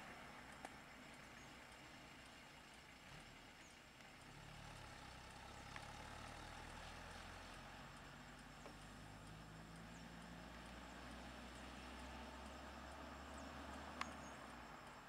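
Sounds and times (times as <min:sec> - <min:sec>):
vehicle engine idling: 0:00.0 - 0:15.0
faint click: 0:14.0 - 0:14.2.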